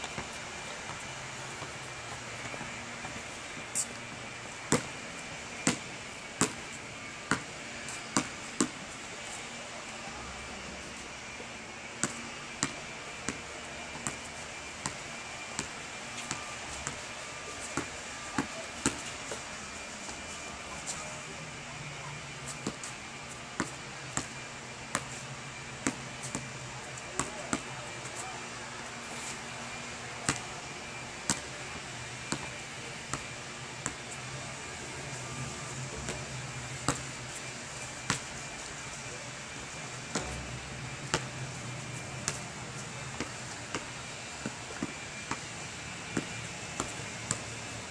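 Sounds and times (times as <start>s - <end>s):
steady low hum: 0.0s - 47.9s
basketball bouncing on asphalt: 4.6s - 8.8s, 12.0s - 15.0s, 15.6s - 17.1s, 17.7s - 19.4s, 22.3s - 27.8s, 30.2s - 30.5s, 31.3s - 31.5s, 32.2s - 34.2s, 35.3s - 38.4s, 40.1s - 41.6s, 42.2s - 47.5s.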